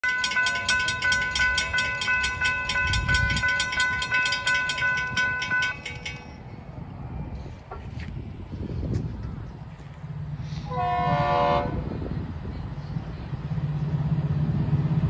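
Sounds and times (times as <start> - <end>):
railroad crossing bell ringing: 0.0 - 6.9.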